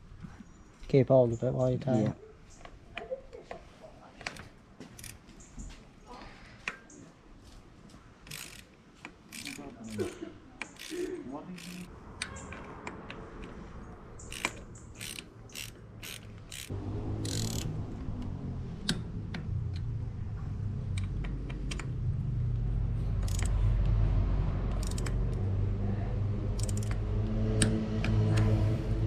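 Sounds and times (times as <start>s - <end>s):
bicycle wheel clicks: 8.2s - 8.7s, 9.3s - 12.6s, 14.2s - 17.7s, 23.2s - 23.5s, 24.7s - 25.4s, 26.6s - 27.0s
freehub ratcheting whirr: 8.2s - 8.7s, 9.3s - 12.4s, 14.2s - 20.0s, 23.1s - 24.0s, 24.6s - 25.6s, 26.5s - 28.7s.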